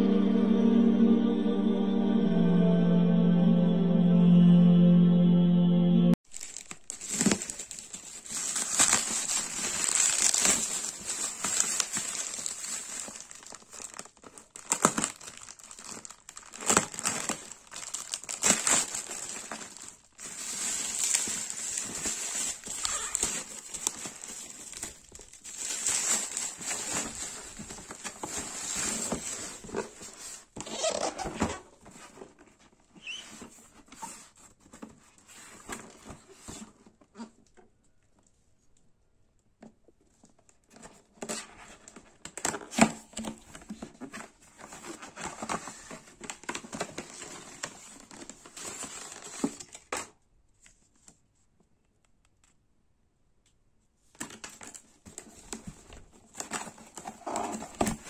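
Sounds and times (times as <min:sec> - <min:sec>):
plastic packaging crinkling: 0:06.2 - 0:31.0, 0:54.2 - 0:58.0.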